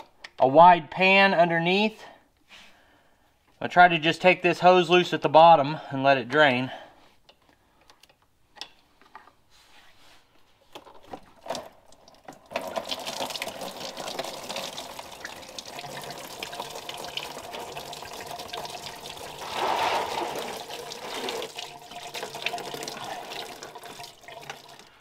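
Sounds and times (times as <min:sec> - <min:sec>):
coolant splashing into tub: 0:11.4 - 0:25.0.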